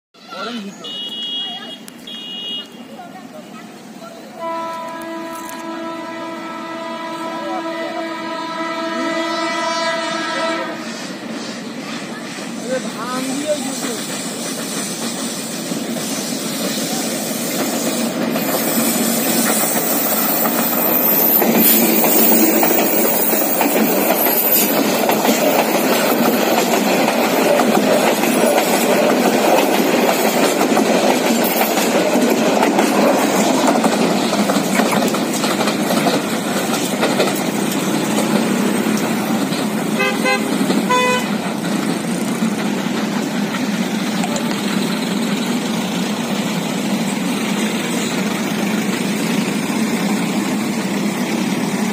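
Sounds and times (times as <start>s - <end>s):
diesel locomotive engine: 0.2s - 51.9s
train horn: 0.8s - 2.7s, 4.4s - 11.2s, 40.0s - 41.4s
train wheels rumbling on rails: 2.8s - 51.9s.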